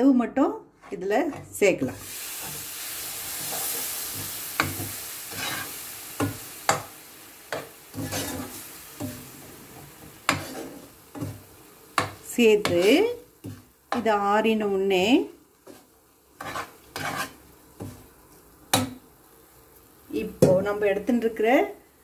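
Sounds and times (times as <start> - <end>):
milk sizzling in a hot pan: 1.7 - 22.0
metal spoon scraping a pan: 3.3 - 6.9, 7.5 - 14.1, 15.6 - 18.0.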